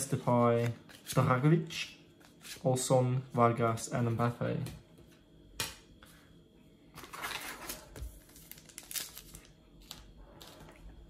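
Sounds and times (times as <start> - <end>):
wrapper crinkling and tearing: 7.1 - 10.6.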